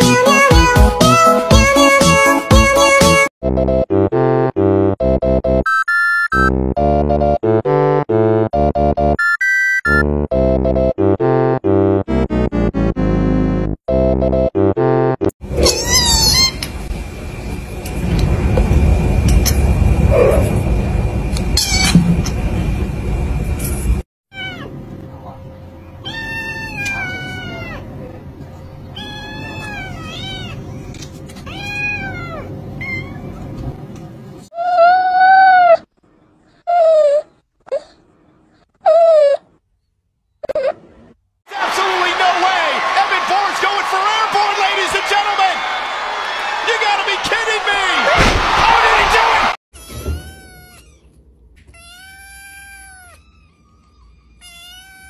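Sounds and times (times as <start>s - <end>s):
kittens meowing: 24.3s - 24.7s, 26.0s - 27.9s, 28.9s - 30.8s, 31.4s - 33.3s, 49.8s - 55.0s.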